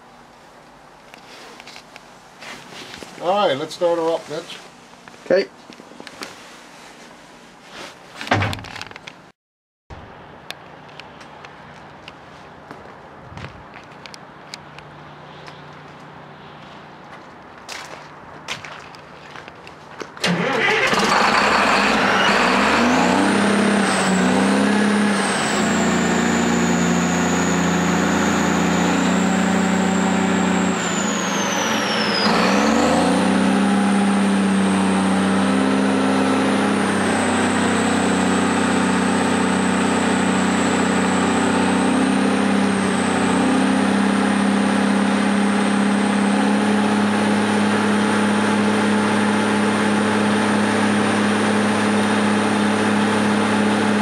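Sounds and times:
high engine whine: 19.0 - 54.0
diesel engine running: 20.2 - 54.0.

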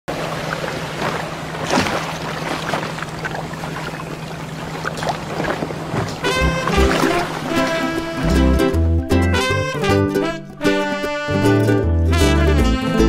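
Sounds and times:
water rushing past hull: 0.1 - 9.8.

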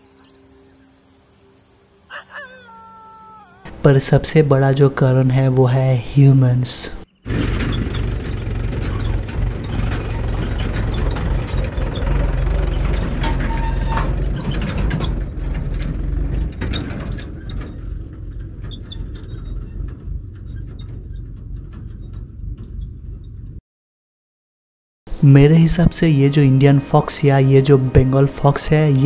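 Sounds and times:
tractor engine running: 7.2 - 23.6.

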